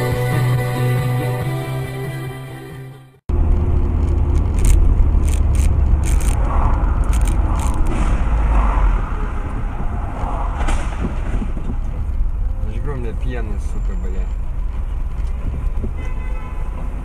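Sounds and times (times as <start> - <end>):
car engine and road noise: 0.0 - 17.0
sharp clicks or rattles: 3.5 - 8.0.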